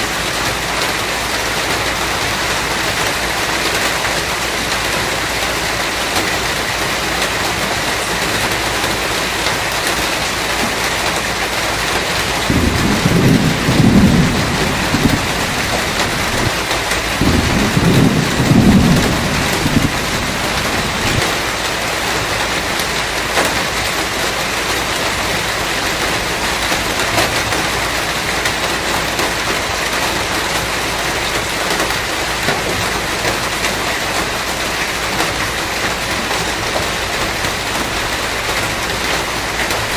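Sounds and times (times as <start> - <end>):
heavy rain hiss: 0.0 - 39.9
thunder rolling: 11.9 - 22.8.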